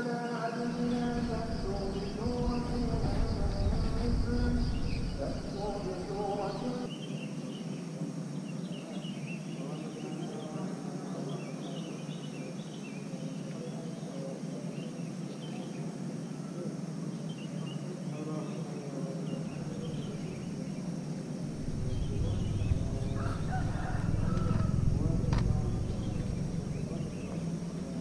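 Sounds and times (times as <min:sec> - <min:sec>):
small birds chirping: 0:00.2 - 0:28.0
low rumble: 0:00.7 - 0:06.9, 0:19.6 - 0:20.6, 0:21.4 - 0:28.0.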